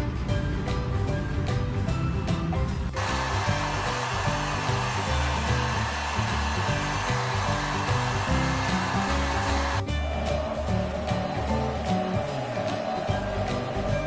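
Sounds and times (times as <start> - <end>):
background music: 0.0 - 14.0
hair dryer blowing: 3.0 - 9.9.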